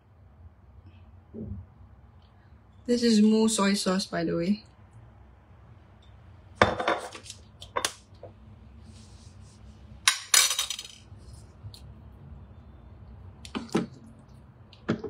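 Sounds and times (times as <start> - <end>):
kitchen utensils clattering: 10.1 - 11.0.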